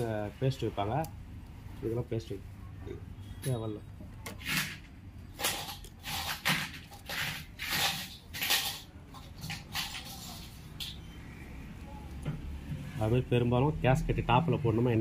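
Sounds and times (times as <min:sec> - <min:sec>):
tools scraping and rustling: 0:04.2 - 0:11.1.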